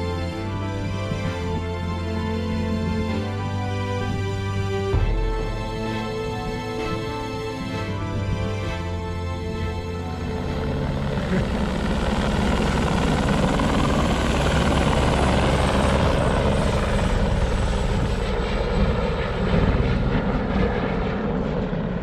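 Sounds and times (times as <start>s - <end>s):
helicopter rotor and engine: 0.0s - 22.0s.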